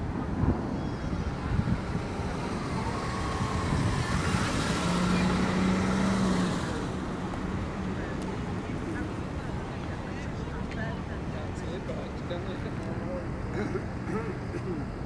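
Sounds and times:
vehicle passing rushing: 0.0s - 8.7s.

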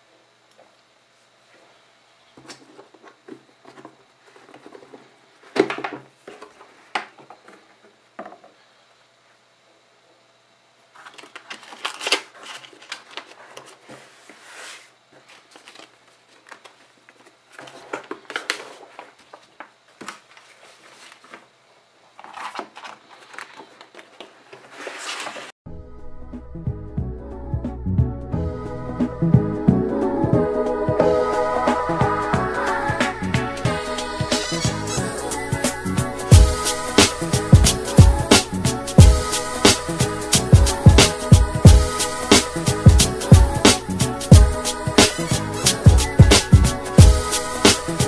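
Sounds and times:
paper rustling and sliding: 2.4s - 7.8s, 10.9s - 25.6s.

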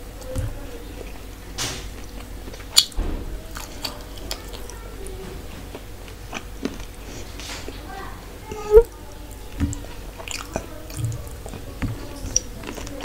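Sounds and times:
person chewing: 2.0s - 4.8s, 5.7s - 7.5s, 9.6s - 13.0s
fingers mixing food on a steel plate: 8.6s - 13.0s.

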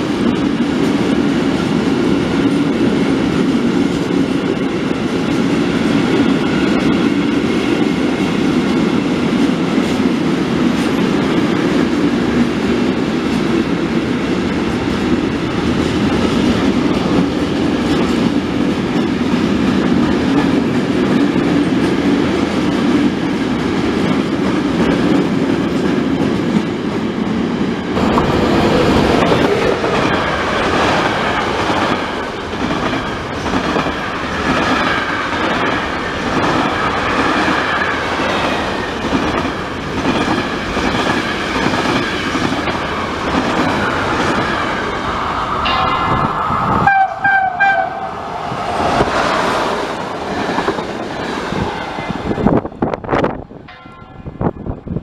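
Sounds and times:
freight train rumbling over rails: 0.0s - 55.0s
locomotive horn blast: 46.8s - 48.1s.

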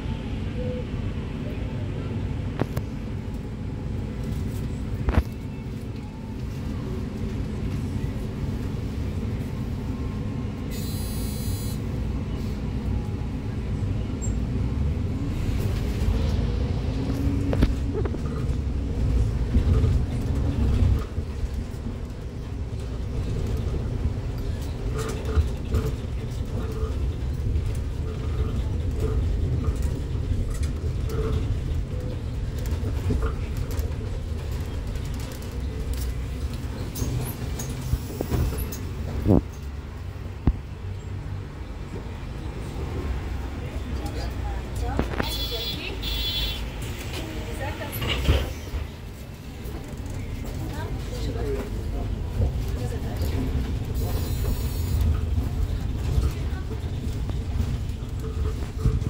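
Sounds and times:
bus engine and road rumble: 0.0s - 59.0s
faint voices: 42.0s - 59.0s.

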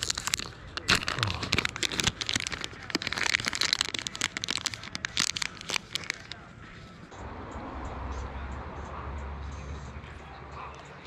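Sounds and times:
plastic pouch crinkling: 0.0s - 6.4s.

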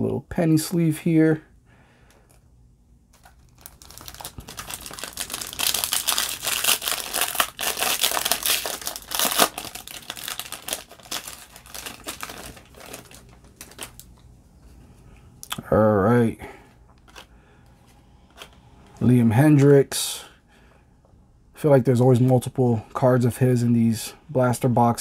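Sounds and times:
foil wrapper crinkling and tearing: 3.1s - 14.2s.

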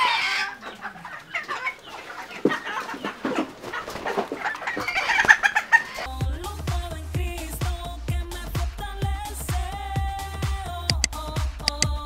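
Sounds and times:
chickens clucking: 0.0s - 6.1s.

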